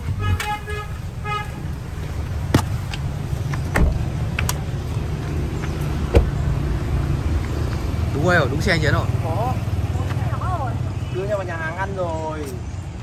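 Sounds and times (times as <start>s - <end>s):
car door thumping shut: 3.7s - 4.2s, 6.1s - 6.4s.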